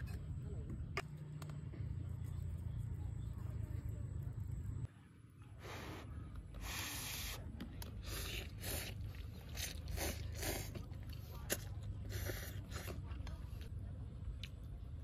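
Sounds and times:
person slurping noodles: 8.0s - 13.0s.

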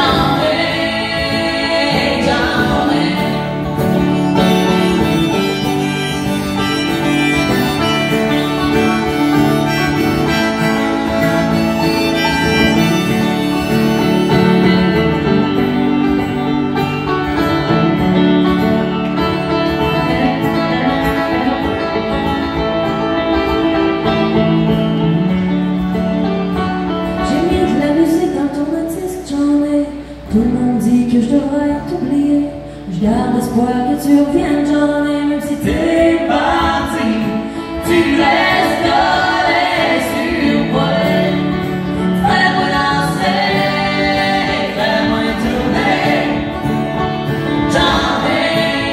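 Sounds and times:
woman singing: 0.0s - 5.5s, 27.2s - 46.5s, 47.6s - 48.9s
acoustic guitar: 0.0s - 48.9s
harmonica notes: 0.1s - 27.3s.

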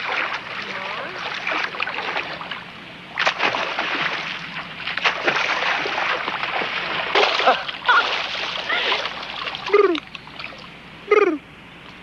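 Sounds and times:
water splashing and sloshing: 0.0s - 11.0s.

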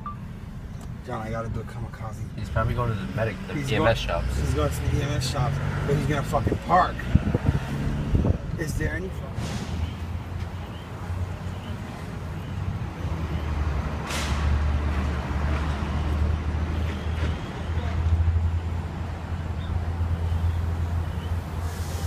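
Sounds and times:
brief hiss: 21.6s - 22.0s.

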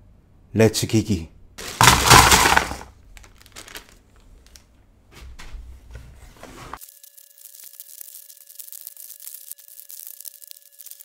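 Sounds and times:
cardboard puzzle pieces shuffling: 1.6s - 4.0s
plastic bag crinkling: 1.6s - 4.6s, 7.2s - 11.0s.

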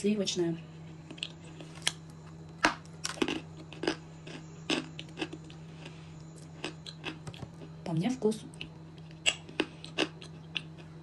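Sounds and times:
person chewing crunchy clay: 0.8s - 7.8s, 8.5s - 11.0s.

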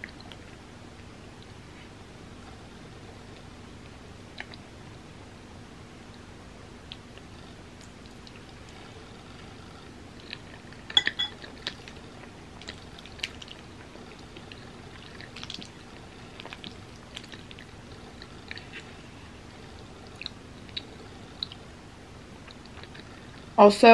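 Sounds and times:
chewing sounds: 6.9s - 21.7s, 22.4s - 23.5s.

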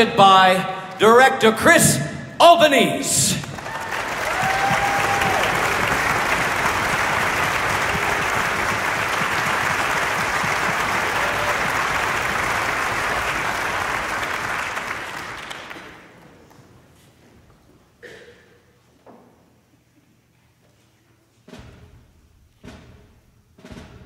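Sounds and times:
audience applauding: 3.3s - 16.3s.

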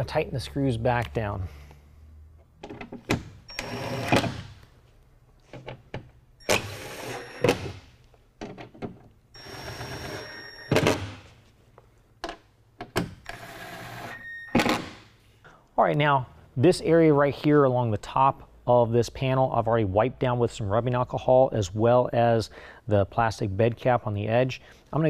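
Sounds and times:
cordless drill driving screws: 3.5s - 4.4s, 6.4s - 7.6s, 9.4s - 10.9s, 13.3s - 14.2s.

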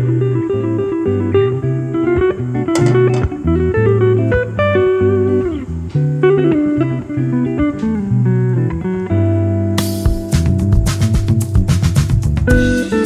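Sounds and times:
guitar-led instrumental music: 0.0s - 13.0s.

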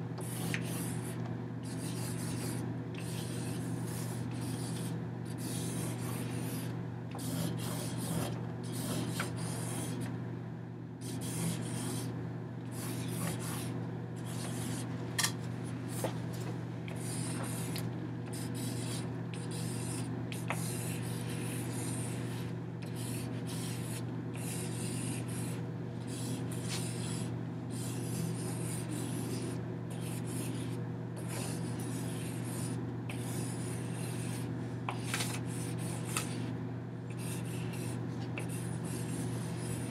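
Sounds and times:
low electrical hum: 0.0s - 39.9s
rubbing against paper: 18.4s - 36.5s, 37.2s - 39.9s.

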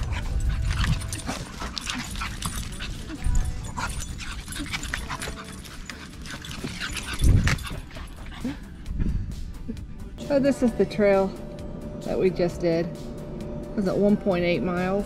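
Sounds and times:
dogs on leashes clicking: 0.0s - 8.7s
dog whimpering: 0.0s - 8.8s.

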